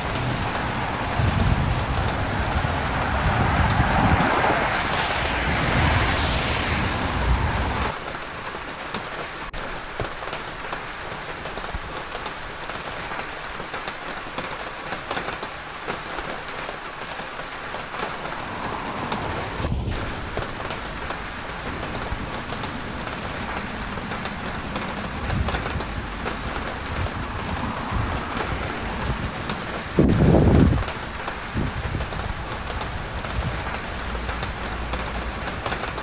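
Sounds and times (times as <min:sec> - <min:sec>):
vehicle swishing past on wet road: 0:00.0 - 0:08.0, 0:17.0 - 0:36.0
rain on a wet street: 0:00.0 - 0:36.0.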